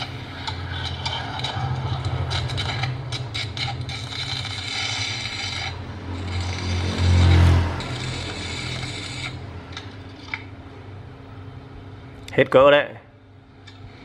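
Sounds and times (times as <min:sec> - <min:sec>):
low buzz: 0:00.0 - 0:12.2
welding arc crackling hiss: 0:07.8 - 0:09.4.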